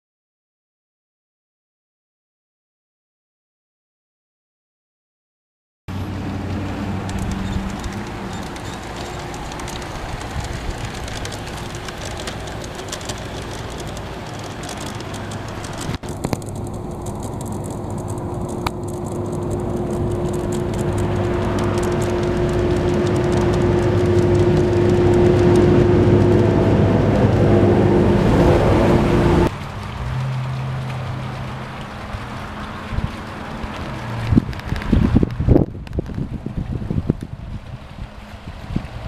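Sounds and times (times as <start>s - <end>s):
wheels rumbling on rails: 5.9s - 39.0s
model train motor hum: 7.0s - 17.1s.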